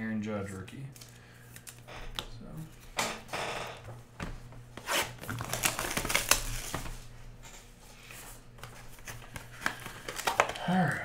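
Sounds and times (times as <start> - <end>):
wrappers crinkling: 4.9 - 7.1.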